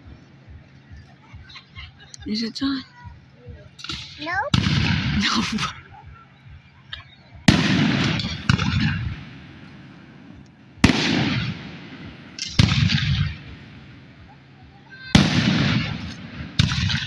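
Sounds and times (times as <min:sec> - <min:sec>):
rolling rumble: 0:00.0 - 0:17.0
firework shells booming: 0:03.8 - 0:06.2, 0:06.9 - 0:17.0.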